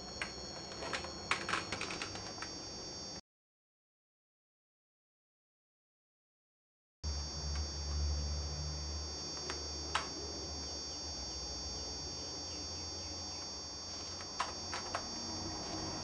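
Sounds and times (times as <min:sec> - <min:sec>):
high whine: 0:00.0 - 0:03.2, 0:07.0 - 0:16.0
low electrical hum: 0:00.0 - 0:03.2, 0:07.1 - 0:16.0.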